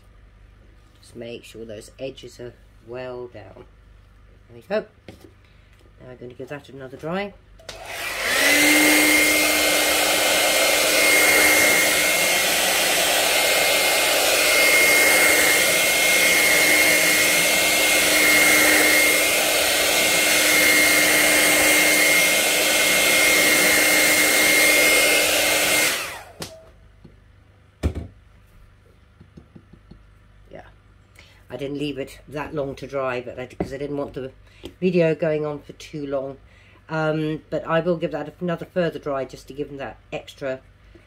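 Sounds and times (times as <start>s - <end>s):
hair dryer running: 7.0s - 26.8s
knock: 27.8s - 28.2s.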